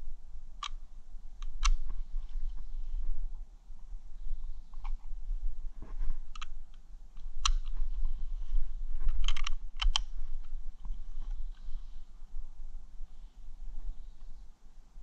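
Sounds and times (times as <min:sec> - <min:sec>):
steady low rumble: 0:00.0 - 0:15.0
shotgun clicks and knocks: 0:09.1 - 0:10.1.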